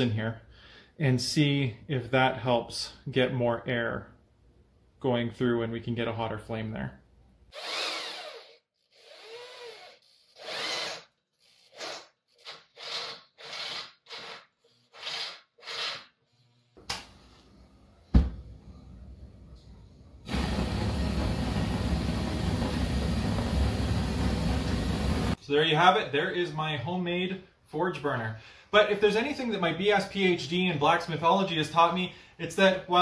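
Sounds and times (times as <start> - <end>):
power drill cutting metal pipe: 7.5 - 16.1
gas burner rushing: 20.2 - 25.4.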